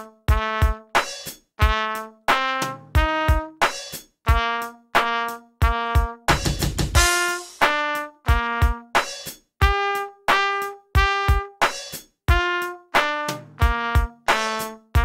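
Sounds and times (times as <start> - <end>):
trumpet playing short notes: 0.0 - 1.0, 1.6 - 3.6, 4.3 - 9.0, 9.6 - 11.6, 12.3 - 15.0
backing track with drum beat: 0.0 - 15.0.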